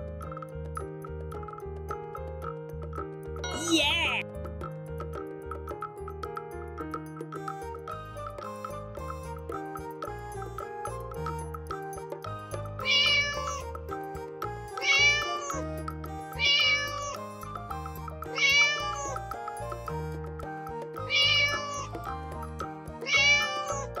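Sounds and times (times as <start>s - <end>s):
background tune: 7.3s - 24.0s
cat meowing: 12.8s - 13.6s, 14.8s - 15.6s, 16.4s - 17.2s, 18.3s - 19.2s, 21.1s - 22.0s, 23.0s - 24.0s.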